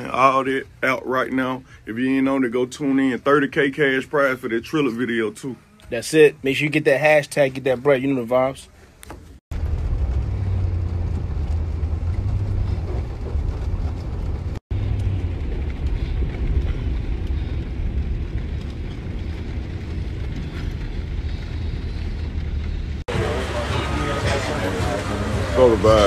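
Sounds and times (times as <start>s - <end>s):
car road and engine rumble: 9.5s - 26.0s.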